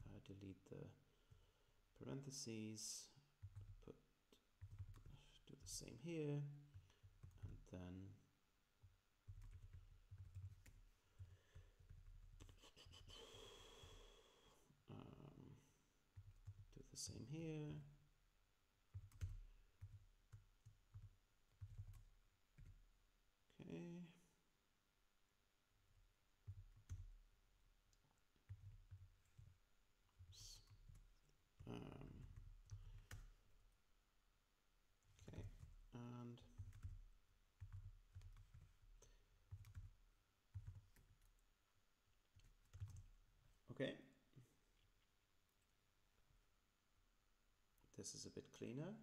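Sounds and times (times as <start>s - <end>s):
computer keyboard keystrokes: 4.6s - 5.2s, 9.3s - 12.5s, 18.9s - 22.8s, 36.6s - 37.0s, 37.6s - 38.8s, 39.5s - 41.4s, 42.4s - 43.1s
faint keyboard keystrokes: 42.3s - 43.2s.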